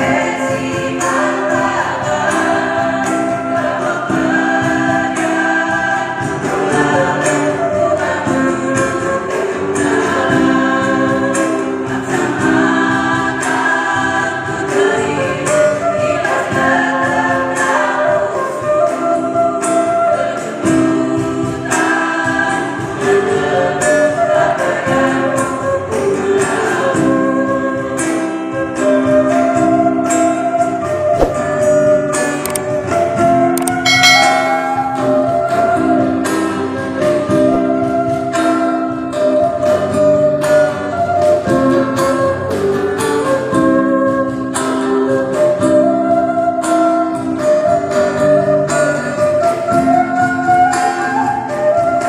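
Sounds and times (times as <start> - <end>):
women's choir singing a hymn: 0.0 - 32.1
acoustic guitar: 0.0 - 52.0.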